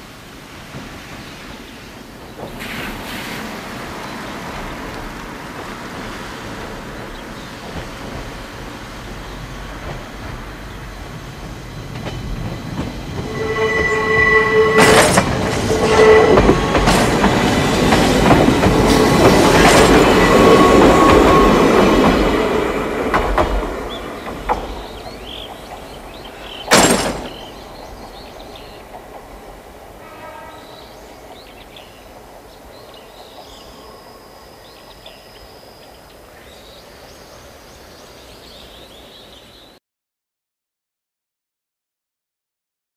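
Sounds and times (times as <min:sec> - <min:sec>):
electric train passing: 0:00.0 - 0:39.2
wheels clicking over rail joints: 0:14.8 - 0:22.3, 0:23.0 - 0:30.0.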